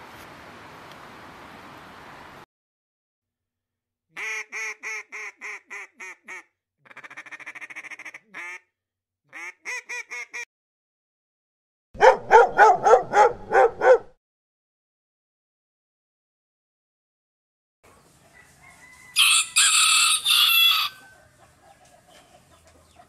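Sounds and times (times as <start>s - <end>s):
duck quacking: 4.2s - 8.7s, 9.3s - 10.5s.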